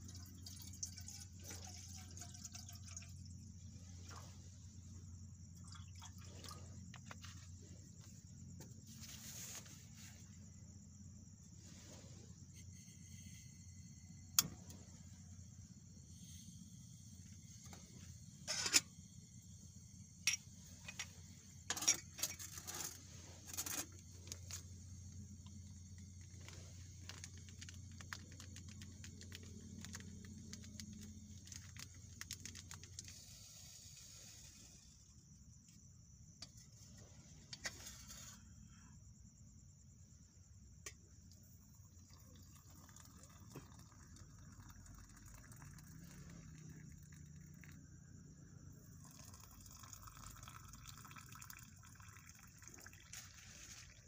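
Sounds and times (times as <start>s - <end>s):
faint gas hiss: 11.3s - 28.1s, 32.8s - 35.8s.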